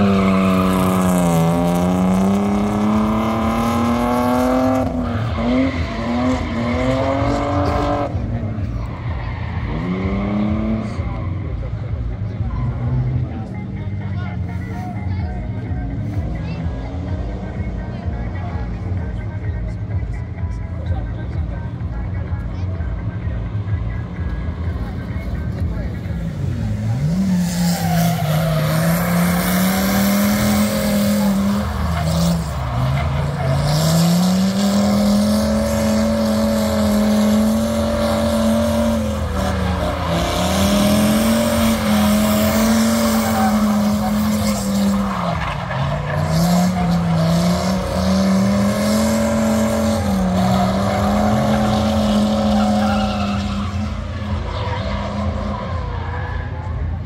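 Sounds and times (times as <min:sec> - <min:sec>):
car engine at high revs: 0:00.0 - 0:57.0
tyres squealing: 0:27.0 - 0:56.8.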